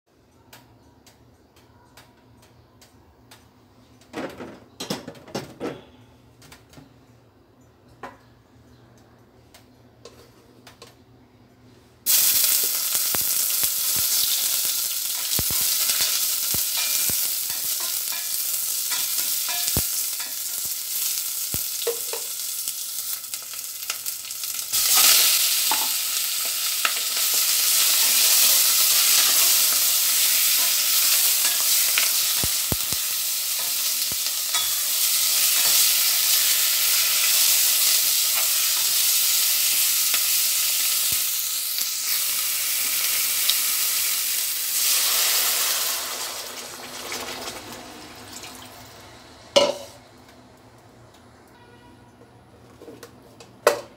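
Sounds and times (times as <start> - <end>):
chicken sizzling in pot: 12.0 - 50.1.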